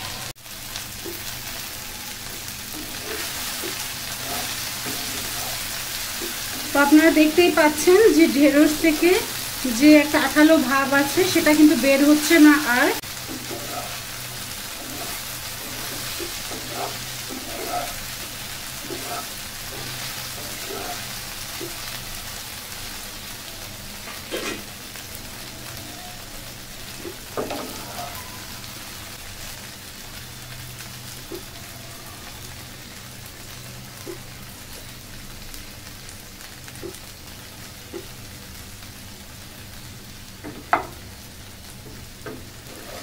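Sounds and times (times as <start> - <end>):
okra sizzling in oil: 0.0 - 43.0
wooden spatula knocking pan: 40.4 - 41.0.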